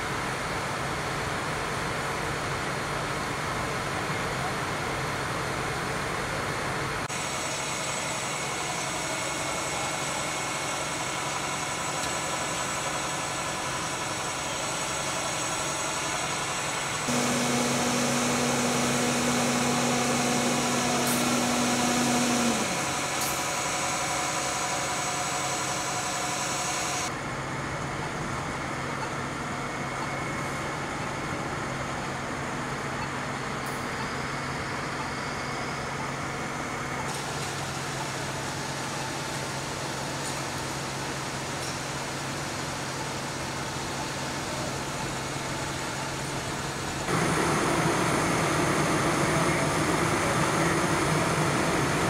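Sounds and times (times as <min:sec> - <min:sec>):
diesel engines running: 0:00.1 - 0:52.0
loud steady drone: 0:07.1 - 0:27.4, 0:46.0 - 0:52.0.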